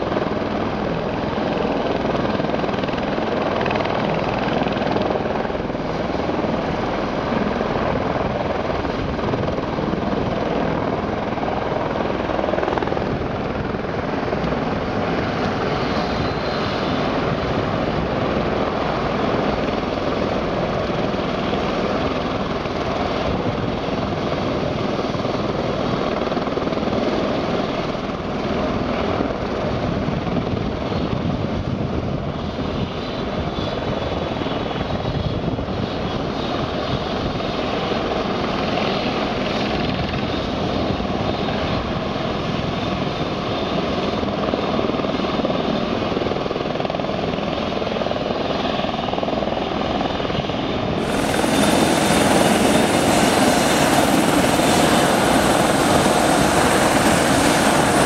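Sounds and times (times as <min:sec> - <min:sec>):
helicopter rotor chopping: 0:00.0 - 0:28.3, 0:43.8 - 0:58.0
helicopter engine whine: 0:00.0 - 0:58.0.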